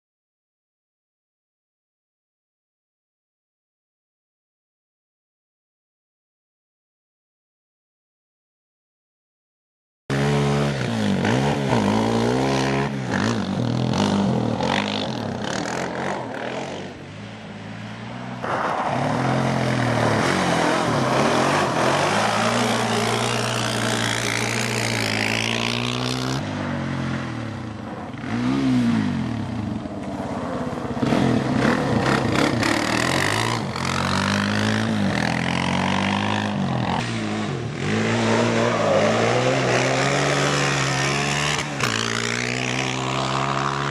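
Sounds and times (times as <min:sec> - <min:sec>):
quad engine revving: 0:10.1 - 0:16.9, 0:18.4 - 0:27.5, 0:28.2 - 0:43.9.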